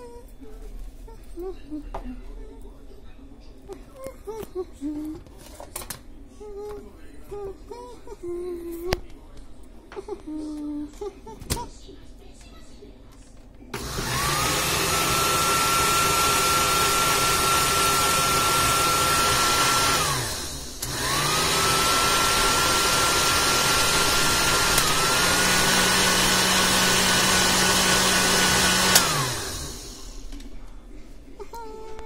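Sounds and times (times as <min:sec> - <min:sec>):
blender motor whining: 0:13.8 - 0:30.3.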